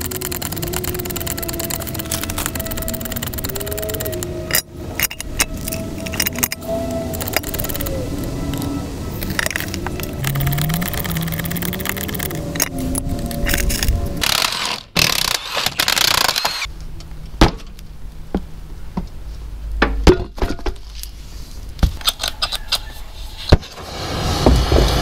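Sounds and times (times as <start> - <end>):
metallic clanks of tools: 4.5 - 7.6.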